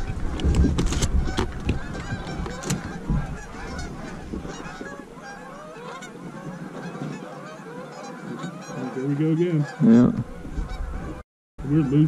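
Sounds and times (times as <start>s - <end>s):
geese honking: 1.0s - 12.0s.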